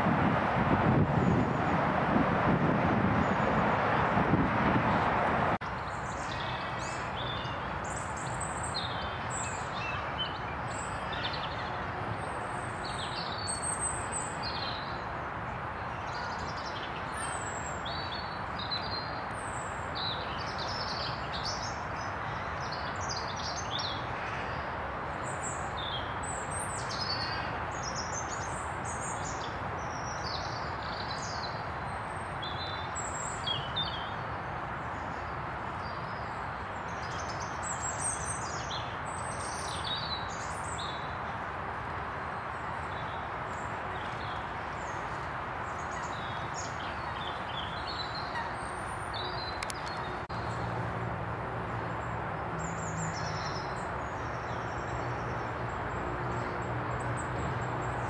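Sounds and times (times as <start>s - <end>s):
steady background noise: 0.0s - 58.0s
birds chirping: 42.4s - 50.7s.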